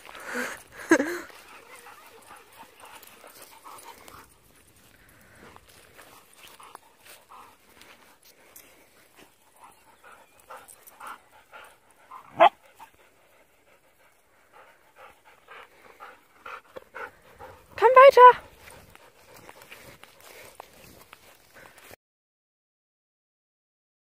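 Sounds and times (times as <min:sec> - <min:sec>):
dogs panting: 0:00.0 - 0:22.0.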